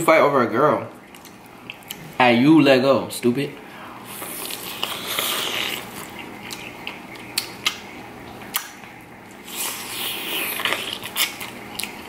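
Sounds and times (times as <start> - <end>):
chewing corn on the cob: 1.0 - 2.1, 4.1 - 12.0.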